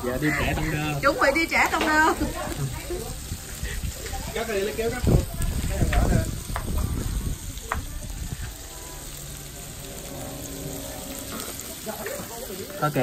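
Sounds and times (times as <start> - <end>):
food sizzling on griddle: 0.0 - 13.0
low rumble: 8.9 - 12.6.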